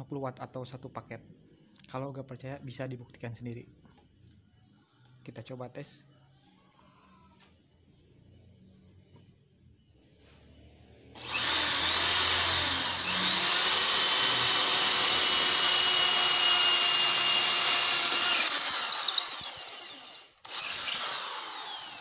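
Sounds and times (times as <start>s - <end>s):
impact drill drilling into wood: 11.2s - 22.0s.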